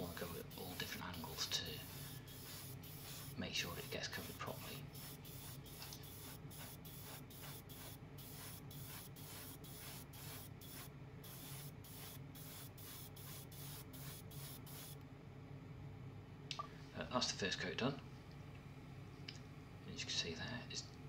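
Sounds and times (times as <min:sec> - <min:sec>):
airbrush spraying hiss: 0:00.0 - 0:15.0
steady low hum: 0:00.0 - 0:21.0.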